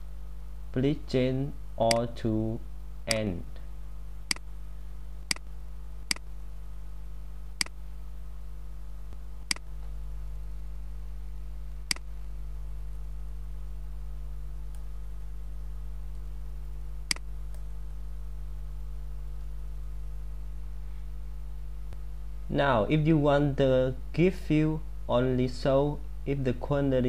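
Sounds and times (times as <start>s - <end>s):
low electrical hum: 0.0s - 27.0s
computer mouse clicks: 17.1s - 17.6s.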